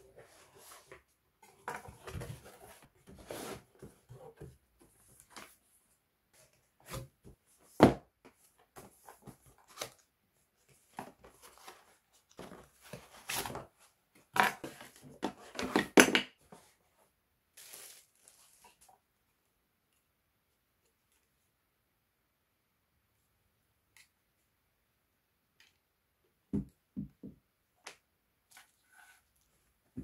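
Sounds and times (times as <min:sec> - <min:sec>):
packaging rustling and crinkling: 0:17.6 - 0:18.9.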